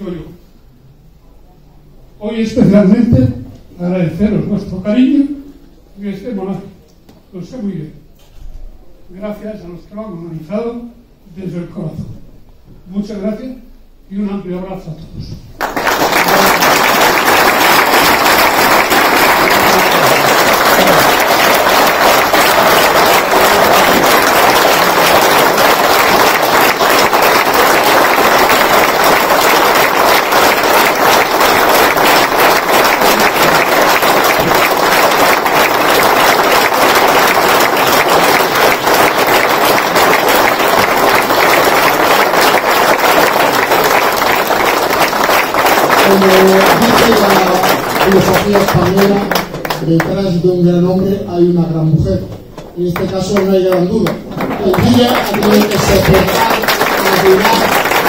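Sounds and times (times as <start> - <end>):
crowd applauding: 15.6 - 50.2, 52.9 - 58.0.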